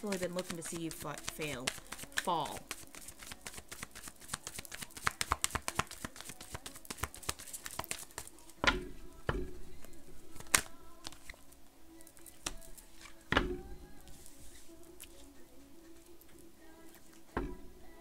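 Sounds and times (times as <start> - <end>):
cards being shuffled: 0.0 - 8.6, 10.3 - 11.4, 12.2 - 13.3.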